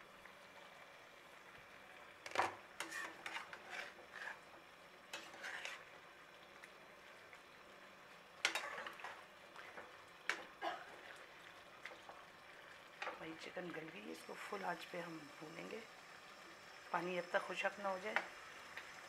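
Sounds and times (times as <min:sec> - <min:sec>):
faint sizzle: 0:00.0 - 0:19.0
spatula scraping a pan: 0:02.3 - 0:06.0, 0:08.4 - 0:11.1.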